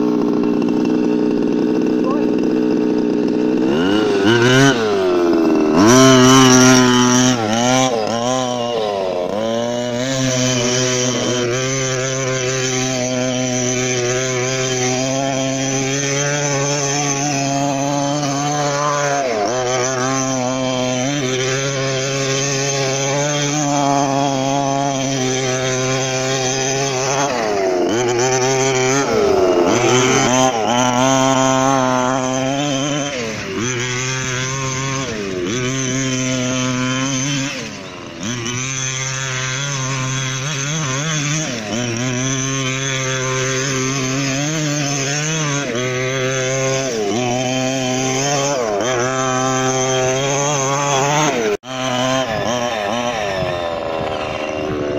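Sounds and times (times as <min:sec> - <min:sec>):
small two-stroke engine revving: 0:00.0 - 0:54.9.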